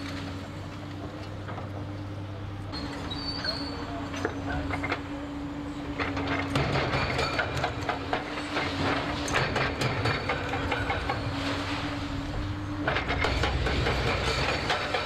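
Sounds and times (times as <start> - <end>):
excavator engine and hydraulic hum: 0.0 - 15.0
metal and concrete clanks: 6.0 - 11.4, 12.8 - 15.0.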